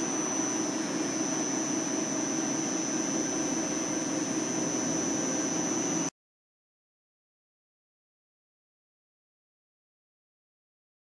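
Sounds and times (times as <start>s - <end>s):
milling machine whine and hum: 0.0s - 6.1s.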